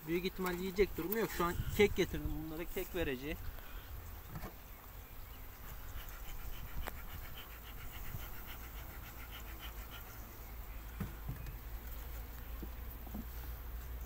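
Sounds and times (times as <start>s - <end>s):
rapid panting breaths: 5.6s - 10.6s.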